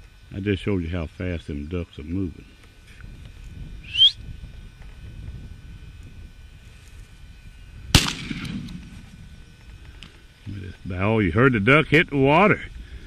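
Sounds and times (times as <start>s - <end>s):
shotgun shot echoing: 7.9s - 9.0s.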